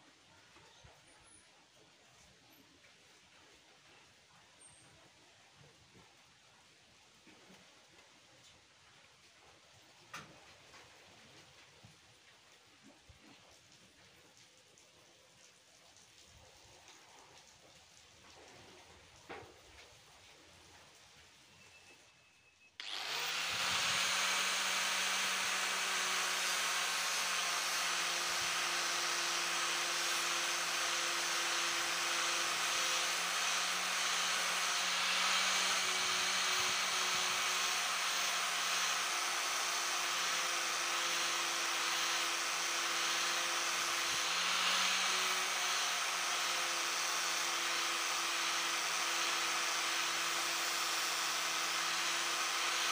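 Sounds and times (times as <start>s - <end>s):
angle grinder sanding steel: 22.8s - 52.9s
motor whine: 22.8s - 52.9s.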